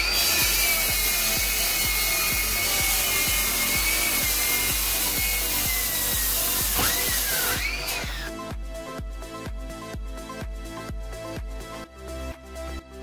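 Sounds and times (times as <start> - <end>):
circular saw cutting wood: 0.0 - 8.4
background music with steady beat: 0.0 - 13.0.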